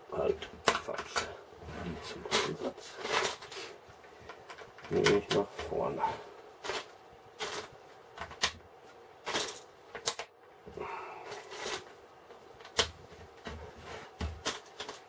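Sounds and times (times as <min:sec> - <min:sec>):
rustle of plastic pieces: 0:00.8 - 0:05.8, 0:06.6 - 0:07.8.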